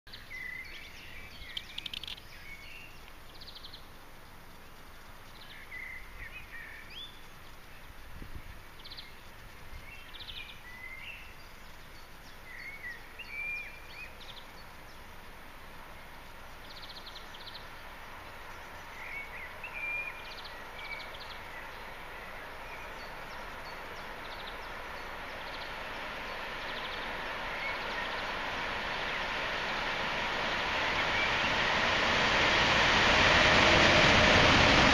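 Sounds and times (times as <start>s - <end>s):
small birds chirping: 0.1s - 3.9s
freight train rushing: 15.0s - 34.9s.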